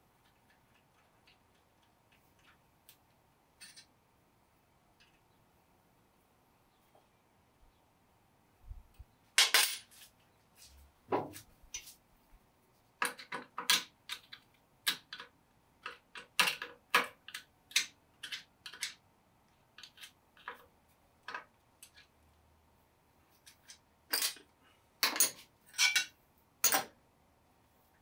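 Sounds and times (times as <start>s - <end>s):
metal tools clicking and clinking: 3.6s - 3.9s, 23.4s - 26.9s.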